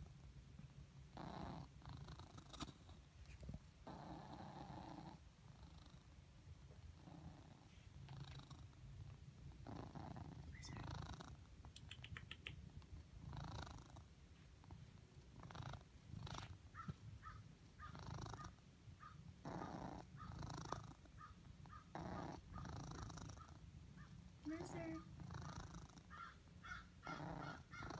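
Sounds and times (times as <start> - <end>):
cat purring: 0.0 - 27.9
high squeaks in purr: 9.8 - 12.6.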